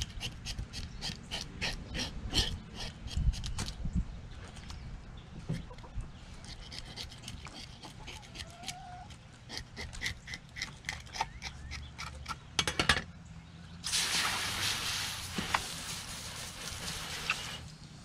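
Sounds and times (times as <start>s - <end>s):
fish scaler scraping scales: 0.0s - 3.8s, 6.4s - 8.8s.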